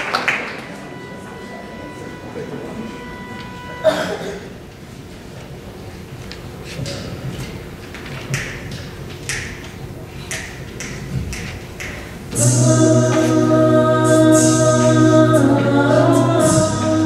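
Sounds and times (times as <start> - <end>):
a cappella group singing: 12.3 - 17.0.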